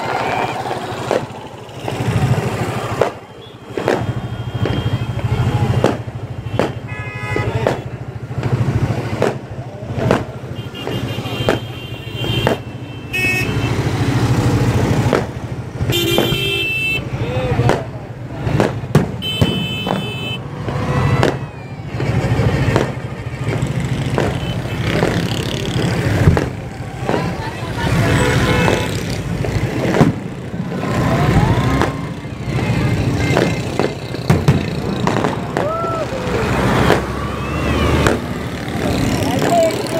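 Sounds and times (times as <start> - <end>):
rising firework whistle: 0.0 - 6.0, 35.0 - 38.3
firecracker bangs: 0.0 - 17.0, 17.6 - 39.9
vehicle engines humming: 0.0 - 39.9.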